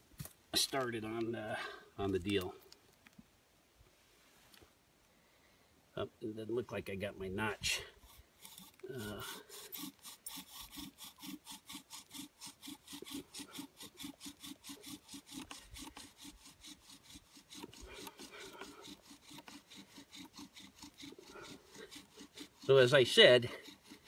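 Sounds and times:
bow drill rasping wood on wood: 7.7 - 24.0.

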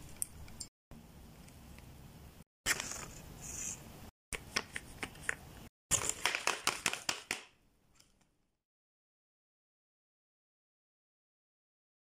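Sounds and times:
paper crinkling: 5.9 - 7.5.

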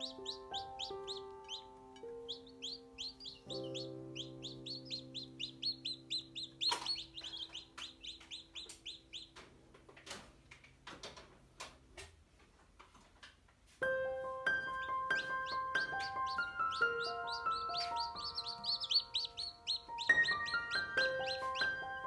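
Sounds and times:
chicks peeping: 0.0 - 9.8, 14.4 - 22.0
soft background music: 0.0 - 10.2, 13.8 - 22.0
sharp clicks and taps: 6.5 - 12.1.

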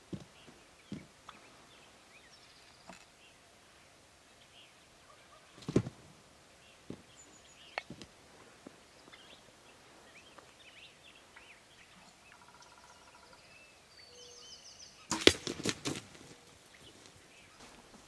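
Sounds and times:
faint bird chirps: 0.3 - 5.6, 8.8 - 15.1
arrow striking: 15.1 - 16.1.

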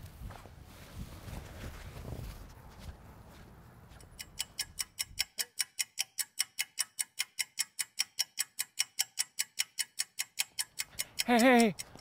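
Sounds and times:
clock ticking fast: 4.0 - 12.0.

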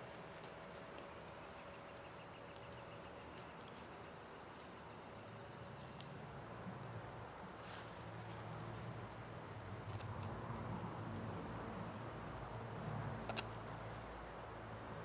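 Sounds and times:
faint birdsong: 0.0 - 9.2
hand-weeding scrapes in soil: 7.6 - 8.5.

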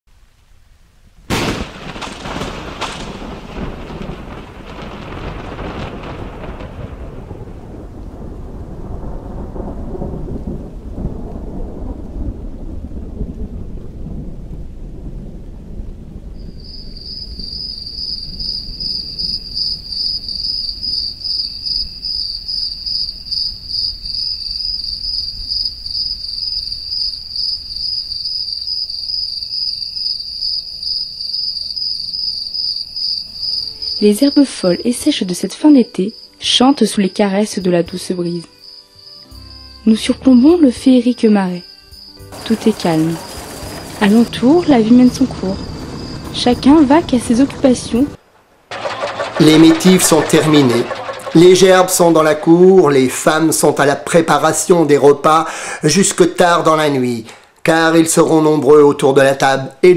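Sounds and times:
thunder cracking and rumbling: 1.3 - 28.9, 42.3 - 58.7
crickets chirping: 16.0 - 53.9.

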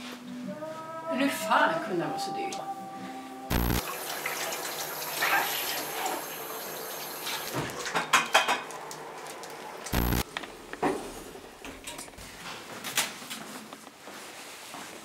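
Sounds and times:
sharp clicks: 3.5 - 3.8, 9.9 - 10.3
tap water running into sink: 3.8 - 7.8.

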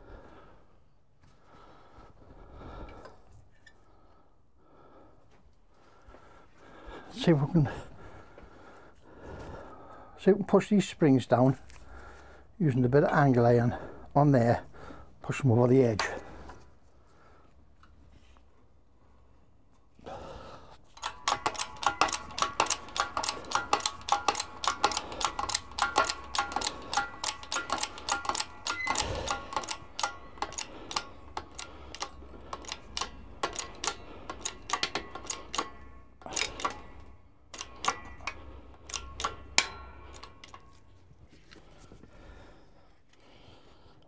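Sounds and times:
hydraulic press clicking: 21.0 - 40.8.

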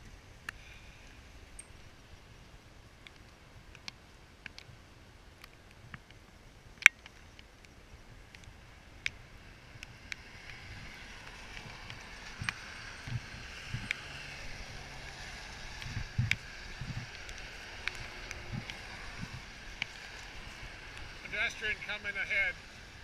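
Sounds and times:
tyres hissing on wet road: 9.2 - 23.0
footsteps on wet pavement: 9.8 - 21.8.

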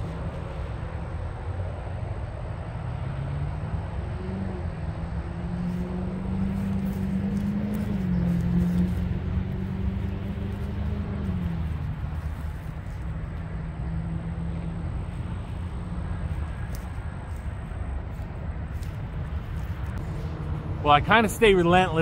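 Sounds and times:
road traffic noise: 0.0 - 22.0
vehicle engine passing: 0.0 - 22.0.

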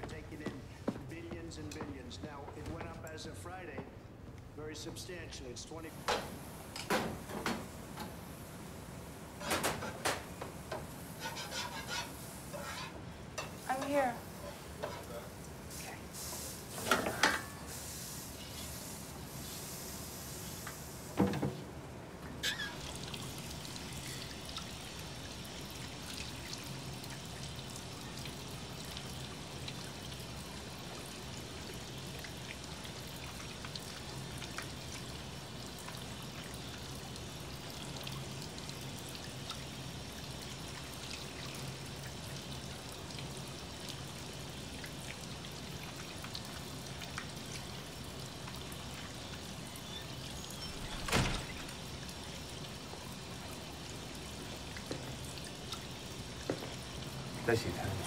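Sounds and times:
tap water running into sink: 22.4 - 58.0.

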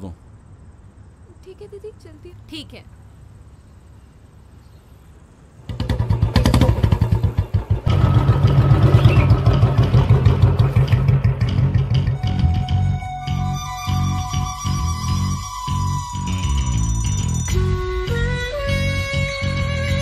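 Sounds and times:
motorcycle engine thumping: 5.6 - 12.4.

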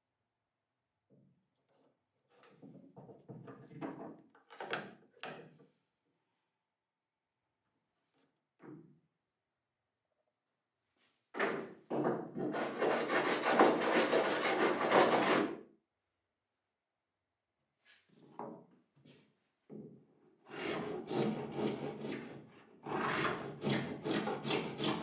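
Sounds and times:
rasp scraping wood: 12.4 - 15.5, 20.5 - 25.0.

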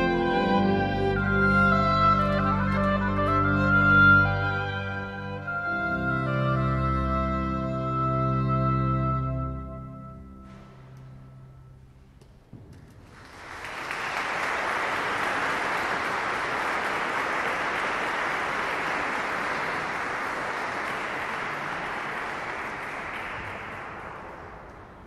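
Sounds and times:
audience applauding: 12.7 - 25.0.

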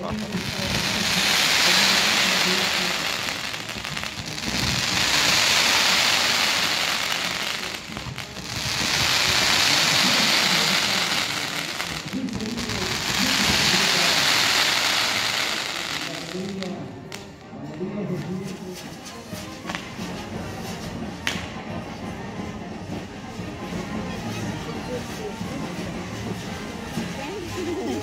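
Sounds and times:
fireworks hissing and crackling: 0.0 - 17.4, 18.2 - 28.0.

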